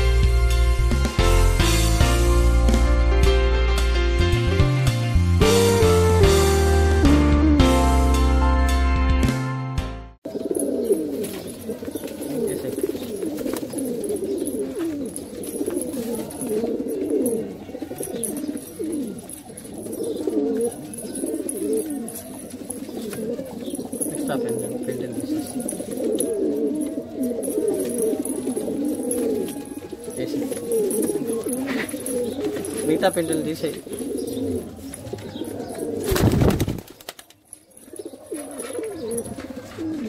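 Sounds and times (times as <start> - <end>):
pigeons cooing: 10.2 - 40.0.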